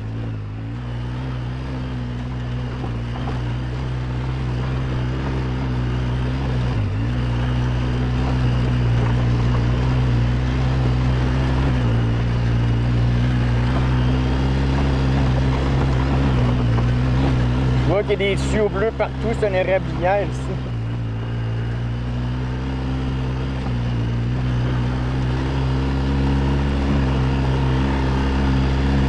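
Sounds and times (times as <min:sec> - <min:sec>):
quad bike engine under load: 0:00.0 - 0:29.0
stones rattling under tyres: 0:06.3 - 0:19.4.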